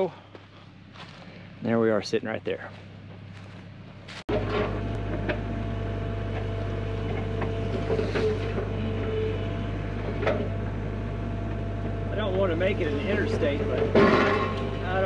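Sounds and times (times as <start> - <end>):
excavator diesel engine running: 0.0 - 15.0.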